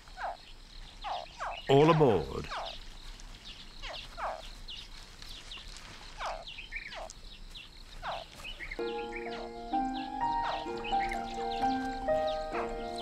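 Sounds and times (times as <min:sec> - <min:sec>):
faint high chirps: 0:08.7 - 0:13.0
crocodile hatchling chirping: 0:08.8 - 0:13.0
music: 0:08.8 - 0:13.0.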